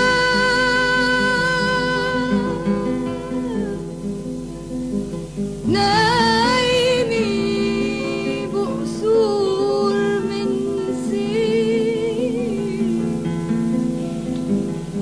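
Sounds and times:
woman singing with vibrato: 0.0s - 4.1s, 5.7s - 13.4s
plucked guitar: 0.0s - 15.0s.

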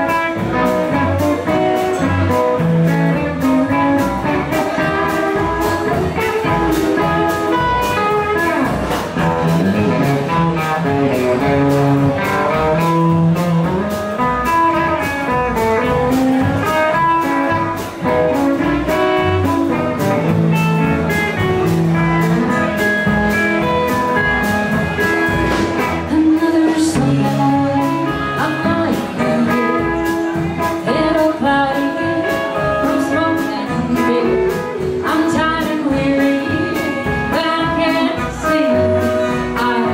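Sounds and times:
blues band playing: 0.0s - 39.9s
person singing: 25.8s - 39.9s.

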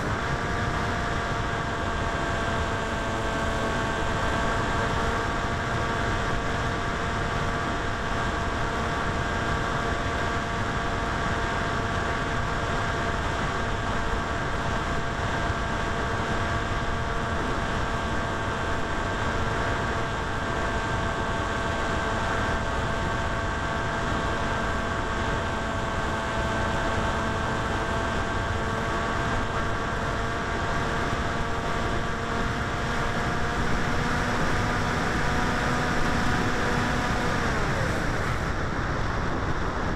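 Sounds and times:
electric motor and propeller whine: 0.0s - 39.9s
rushing wind: 0.0s - 39.9s.

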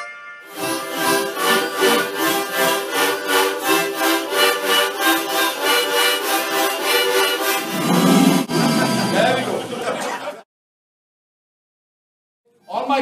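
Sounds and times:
group playing harmonicas: 0.0s - 9.7s.

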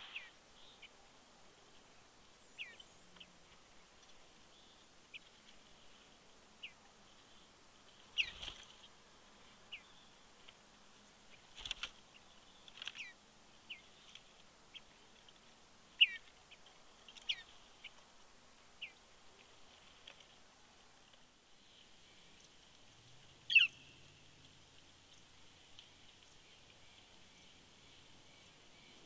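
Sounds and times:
bird calling: 0.0s - 1.0s, 8.1s - 8.9s, 11.3s - 14.9s, 16.0s - 18.0s, 23.4s - 24.4s.

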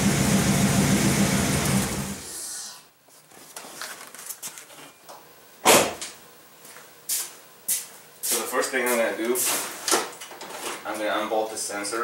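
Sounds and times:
loud short thump: 5.6s - 6.0s.

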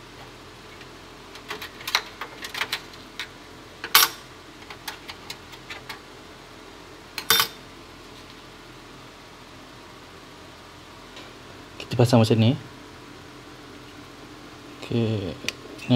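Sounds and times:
metal clicks and clatter: 0.8s - 6.0s.

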